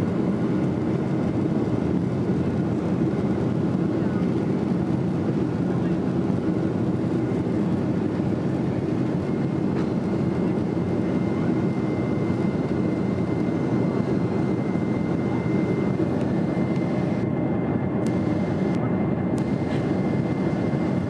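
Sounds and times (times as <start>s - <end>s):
jet engines roaring in cabin: 0.0s - 21.0s
faint thin whine: 9.2s - 21.0s.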